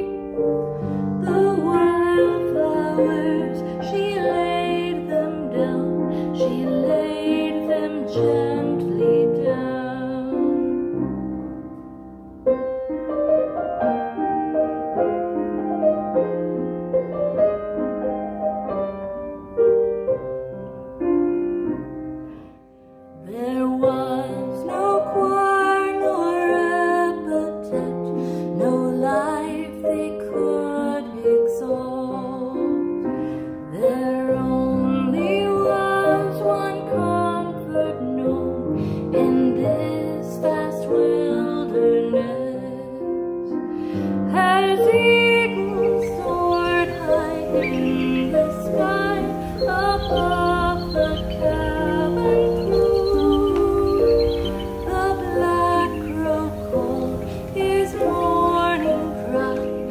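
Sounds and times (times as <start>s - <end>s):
solo piano: 0.0s - 59.9s
woman singing: 1.0s - 10.9s, 23.2s - 59.9s.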